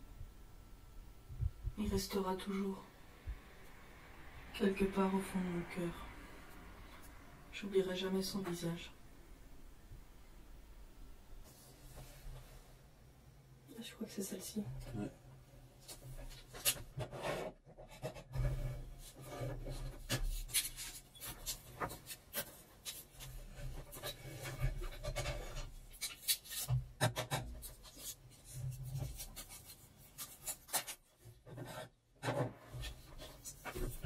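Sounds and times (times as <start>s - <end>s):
hands rubbing scraping and clicking: 19.9s - 31.8s.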